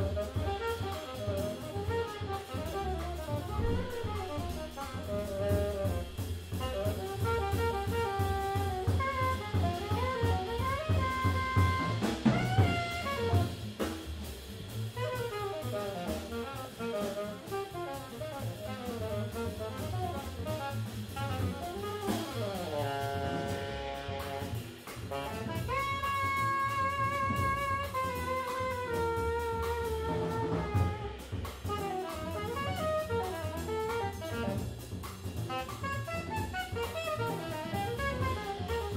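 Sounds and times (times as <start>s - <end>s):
long held horn note: 0.0s - 13.7s
small jazz group playing: 0.0s - 38.9s.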